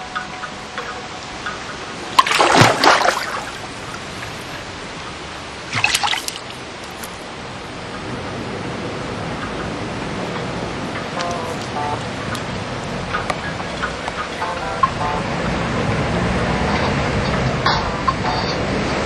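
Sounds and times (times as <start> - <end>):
water trickling: 0.0 - 17.7
dog splashing in pool: 2.2 - 4.6, 5.7 - 6.6.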